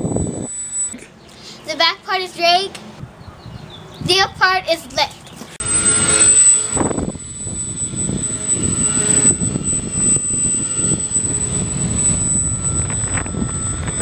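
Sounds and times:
model plane motor whining: 0.0s - 1.0s, 5.6s - 14.0s.

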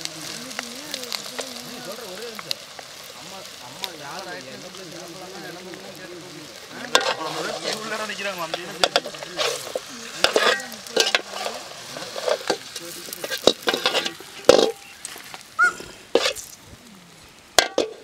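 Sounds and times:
faint sizzle: 0.0s - 18.0s
metal ladle scraping metal pan: 6.8s - 16.4s.

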